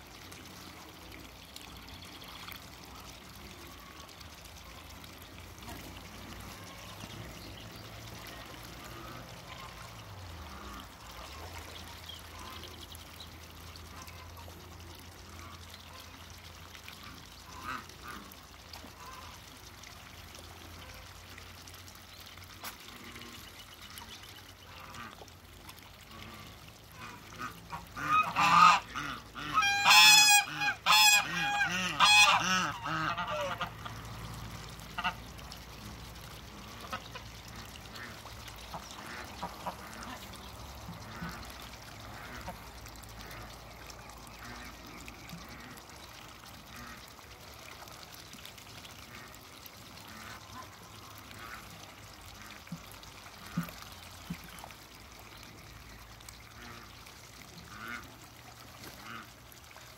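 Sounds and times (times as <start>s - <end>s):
waterfowl calling: 27.4s - 33.8s.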